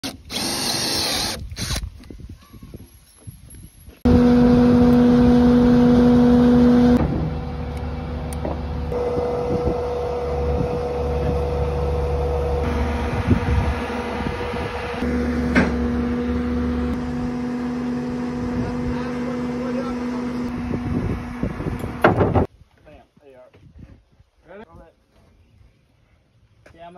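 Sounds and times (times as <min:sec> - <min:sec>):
skid steer engine running: 0:04.0 - 0:22.5.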